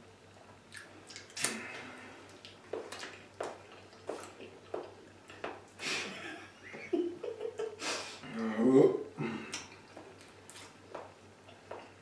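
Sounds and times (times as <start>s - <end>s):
people chewing with mouth smacks: 0.4s - 5.8s, 9.4s - 12.0s.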